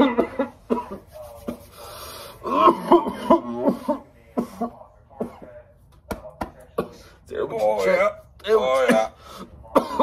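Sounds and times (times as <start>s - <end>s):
man clearing throat: 0.0s - 1.1s, 2.4s - 5.6s, 8.7s - 10.0s
man coughing: 0.0s - 1.1s, 2.4s - 5.6s, 8.7s - 10.0s.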